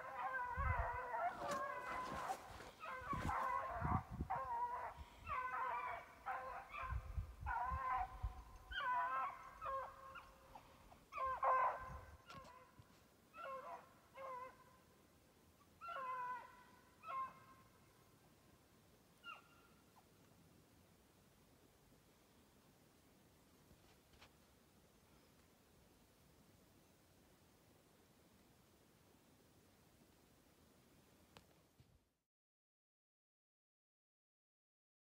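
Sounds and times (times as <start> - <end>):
hounds baying: 0.0 - 14.7, 15.8 - 17.6, 19.2 - 19.7.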